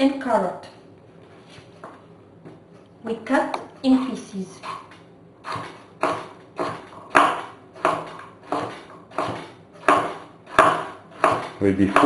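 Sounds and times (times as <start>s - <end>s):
knife chopping on wooden board: 4.6s - 12.0s.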